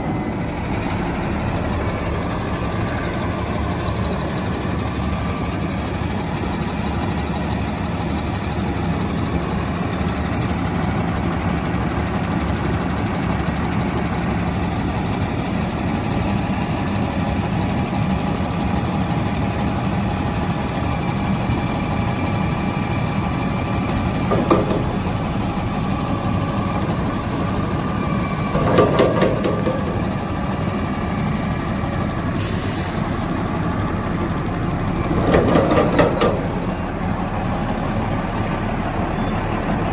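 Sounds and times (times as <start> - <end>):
diesel engine idling: 0.0 - 39.9
metal clanks: 24.2 - 25.2, 28.4 - 30.2, 35.1 - 36.7.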